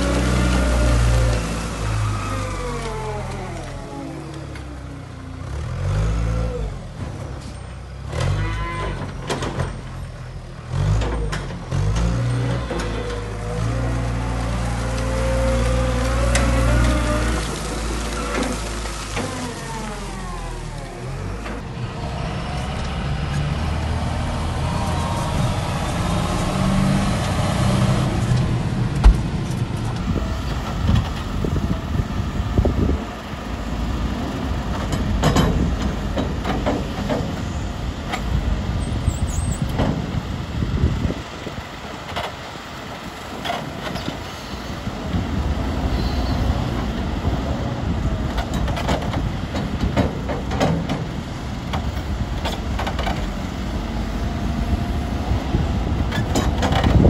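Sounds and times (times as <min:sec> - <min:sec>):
diesel engine working: 0:00.0 - 0:57.0
knocks and clanks: 0:08.1 - 0:10.0, 0:34.7 - 0:37.5, 0:39.7 - 0:40.1, 0:48.3 - 0:53.4, 0:56.1 - 0:57.0.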